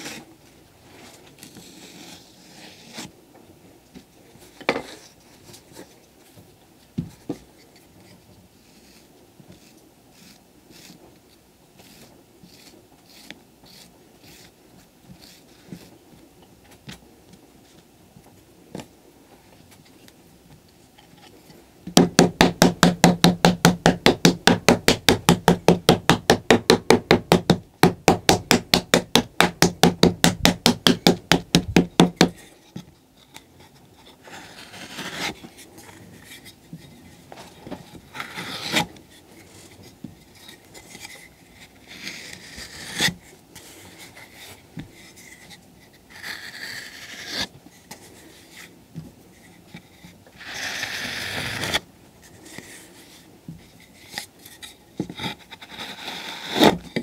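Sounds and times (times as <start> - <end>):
wooden paddle beating clay: 11.8 - 15.9, 21.9 - 32.4.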